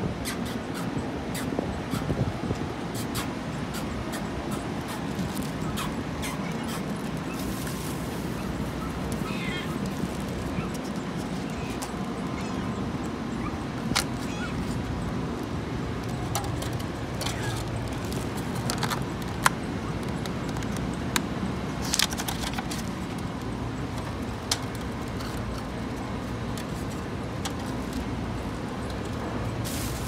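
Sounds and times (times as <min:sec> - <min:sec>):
street background noise: 0:00.0 - 0:30.0.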